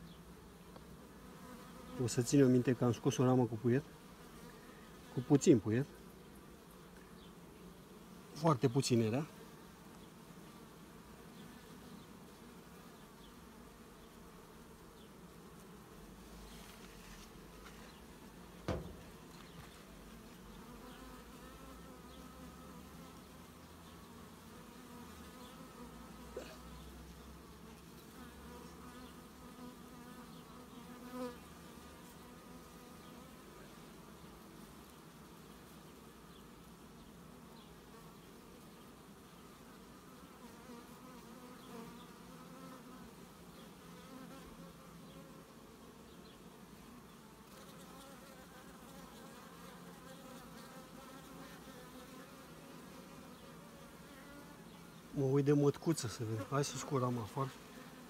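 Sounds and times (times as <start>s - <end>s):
bees buzzing: 0.0s - 58.0s
sharp knock: 18.6s - 19.2s.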